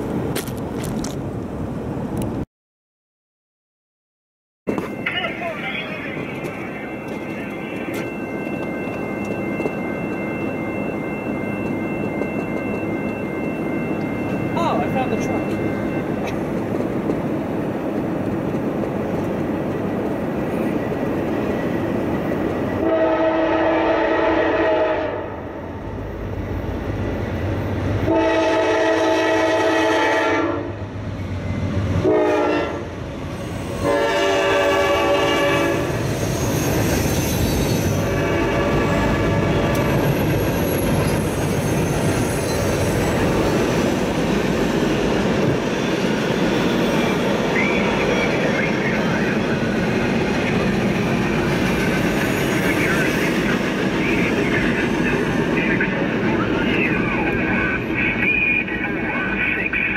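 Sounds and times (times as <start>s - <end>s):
freight train rumbling past: 0.0s - 2.4s, 4.7s - 59.9s
train air horn blasts: 22.8s - 25.4s, 28.1s - 30.8s, 32.0s - 32.9s, 33.8s - 35.9s, 38.1s - 39.9s.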